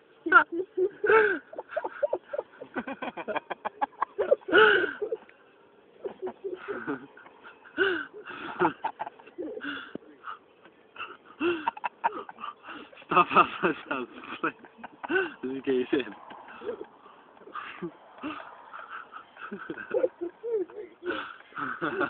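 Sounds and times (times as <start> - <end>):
person laughing hard: 0.7 - 5.2, 6.0 - 9.8, 11.4 - 13.6, 14.2 - 15.5, 16.1 - 22.0.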